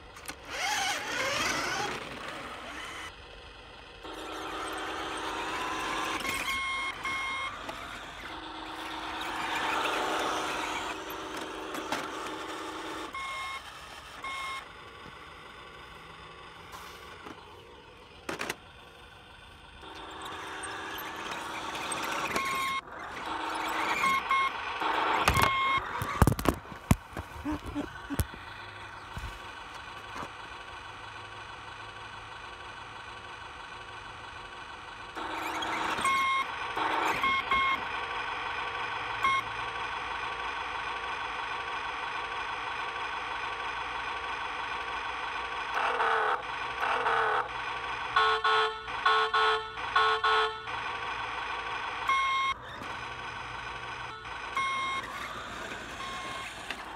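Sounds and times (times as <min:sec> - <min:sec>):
synthetic engine sound: 0:00.0 - 0:56.9
short electronic beeps: 0:05.9 - 0:07.6, 0:13.2 - 0:14.7, 0:19.9 - 0:26.5, 0:35.6 - 0:37.8, 0:52.1 - 0:52.6, 0:54.1 - 0:55.2, 0:56.0 - 0:56.6.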